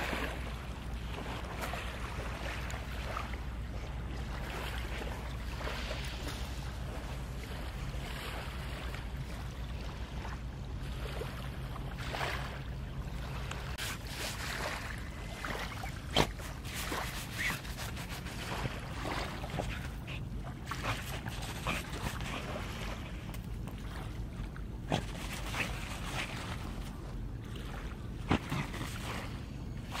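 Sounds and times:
low rumble of wind: 0:00.0 - 0:30.0
dog paws scratching sand: 0:16.0 - 0:18.9, 0:19.5 - 0:22.6, 0:24.9 - 0:26.4.

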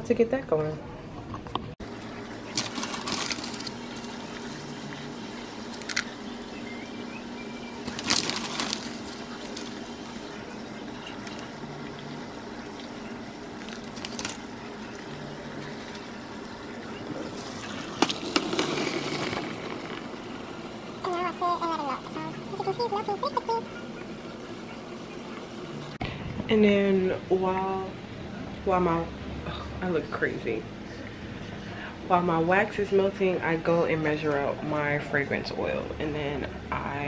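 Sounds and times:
wax flakes rustling into pitcher: 0:02.1 - 0:06.1, 0:07.8 - 0:11.6.

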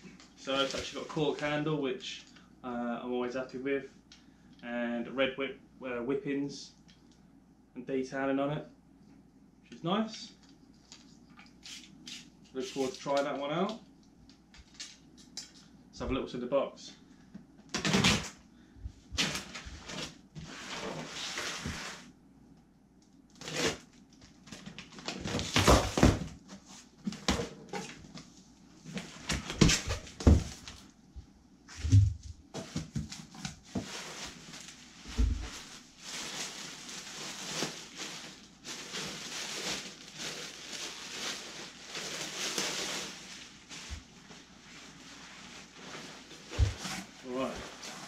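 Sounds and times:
cardboard and tape tearing: 0:23.3 - 0:23.9
plastic bags crinkling: 0:33.7 - 0:48.0
cardboard scrapes and knocks: 0:46.4 - 0:48.0.

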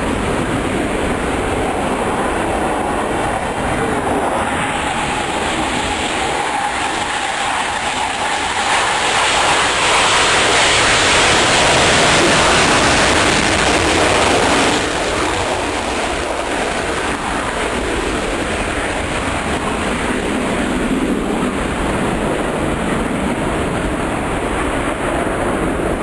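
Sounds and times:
jet taking off: 0:00.0 - 0:26.0.

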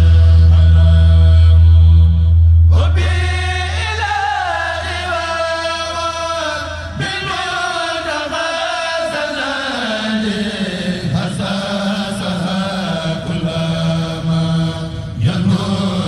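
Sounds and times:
loud low hum: 0:00.0 - 0:08.4
group chanting: 0:02.7 - 0:16.0.

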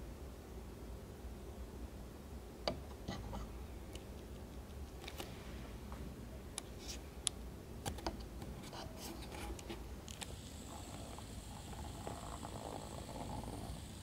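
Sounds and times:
faint high whine: 0:08.7 - 0:14.0.

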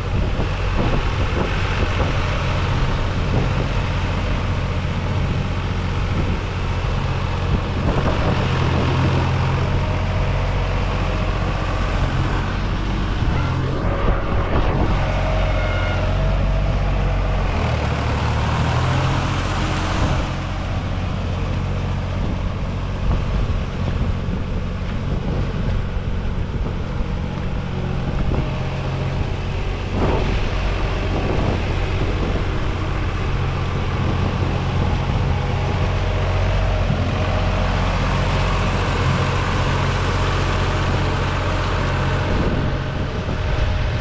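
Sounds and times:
rotary tiller churning mud: 0:00.0 - 0:44.0
tractor diesel engine under load: 0:00.0 - 0:44.0.

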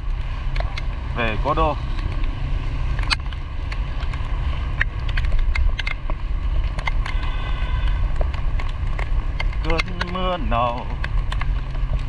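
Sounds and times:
motorbike road rumble: 0:00.0 - 0:12.0
raindrops ticking on camera: 0:00.0 - 0:12.0
wind on microphone: 0:00.0 - 0:12.0.

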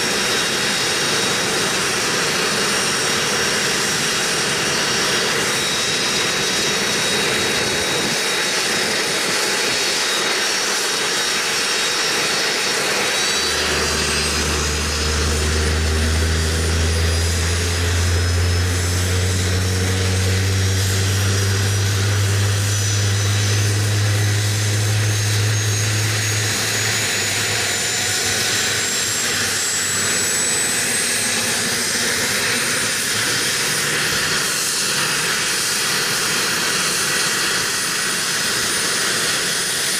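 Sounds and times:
helicopter turbine whine: 0:00.0 - 0:39.9
deep hum: 0:12.6 - 0:32.2.

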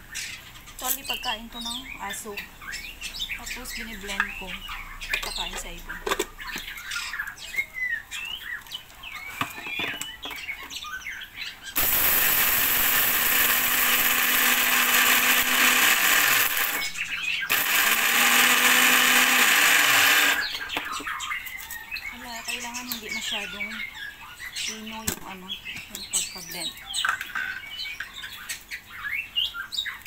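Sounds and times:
caged birds chirping: 0:00.0 - 0:30.0
mixer grinder motor: 0:11.8 - 0:21.0.

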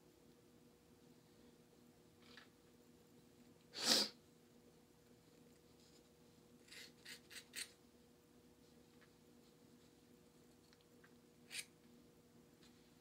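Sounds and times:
sharp hiss-like burst: 0:03.8 - 0:04.1
rasping scrapes on hair: 0:06.6 - 0:07.7.

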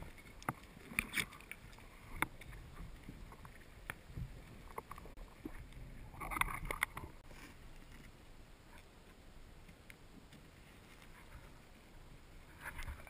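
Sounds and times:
sharp clicks and crackles: 0:00.0 - 0:07.2
underwater low rumble: 0:00.0 - 0:13.0.

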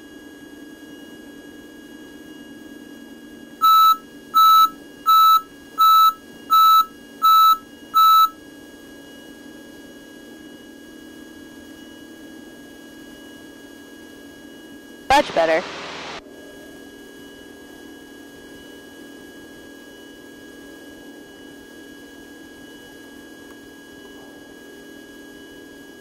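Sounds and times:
electronic alert beeps: 0:03.6 - 0:08.3
small plane engine drone: 0:15.2 - 0:25.8.

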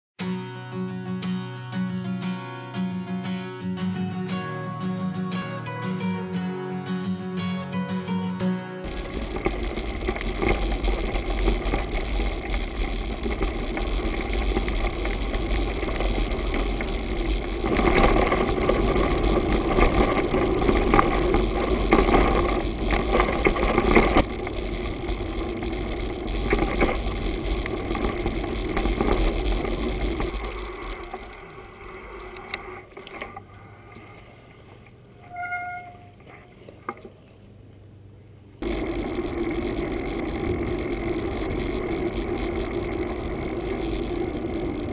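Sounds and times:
bike tyres rumbling on gravel: 0:08.8 - 0:33.4, 0:38.6 - 0:44.9
brief high squeal: 0:35.2 - 0:36.5.

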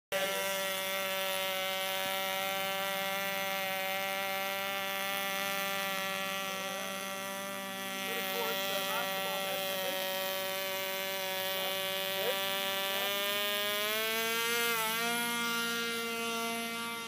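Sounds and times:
model plane engine buzzing: 0:00.1 - 0:17.0.

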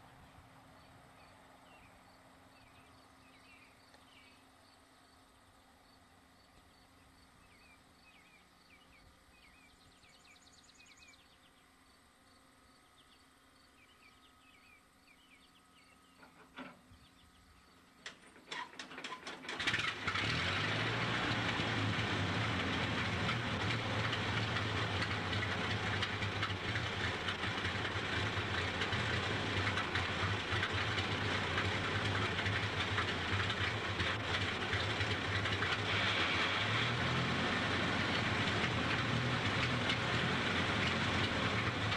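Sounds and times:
faint bird chirps: 0:00.8 - 0:05.0, 0:05.8 - 0:18.0
truck engine starting and running: 0:16.2 - 0:41.9.

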